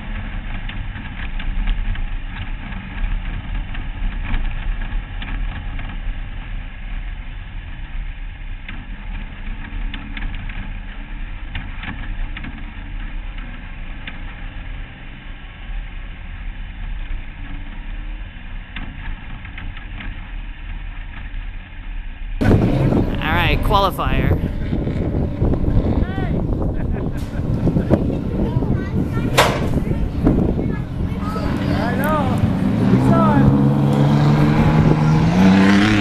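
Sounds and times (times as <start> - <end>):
race car engine running: 24.4 - 36.0.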